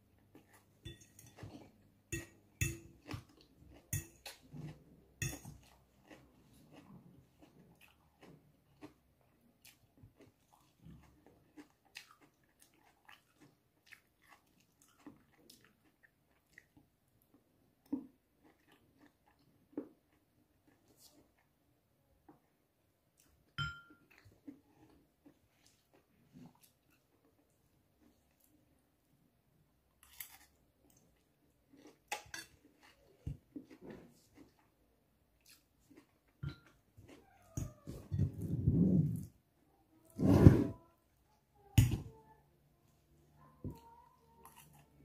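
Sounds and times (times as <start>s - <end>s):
person chewing: 0.1s - 21.5s, 29.9s - 39.3s
fork clinking on ceramic bowl: 0.8s - 1.5s, 2.1s - 3.2s, 3.9s - 4.3s, 5.2s - 5.6s, 23.6s - 24.0s, 36.4s - 36.8s.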